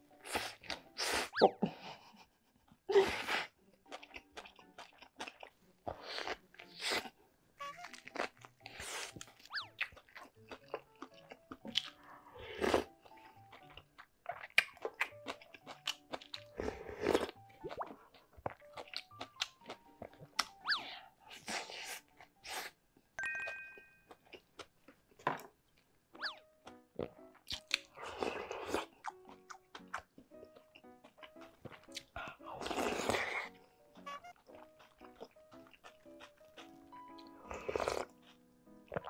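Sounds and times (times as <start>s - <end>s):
background music: 0.0s - 25.4s, 26.0s - 39.0s
person chewing and crunching: 3.7s - 22.7s, 23.4s - 25.5s, 26.1s - 39.0s
slurping noodles: 12.0s - 13.0s, 16.4s - 18.0s, 27.9s - 28.9s, 32.5s - 33.6s, 37.3s - 38.2s.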